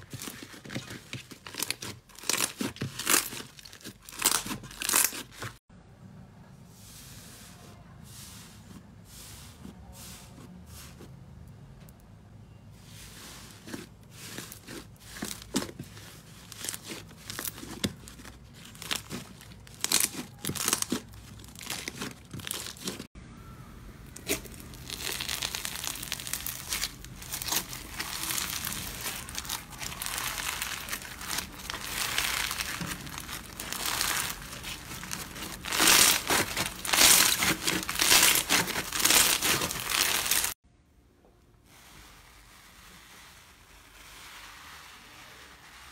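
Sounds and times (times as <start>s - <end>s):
foam-bead slime crunching: 0.0s - 5.6s, 12.8s - 23.1s, 24.0s - 40.6s, 41.7s - 45.9s
slime crackling and popping: 1.3s - 5.6s, 16.5s - 23.0s, 24.0s - 40.6s.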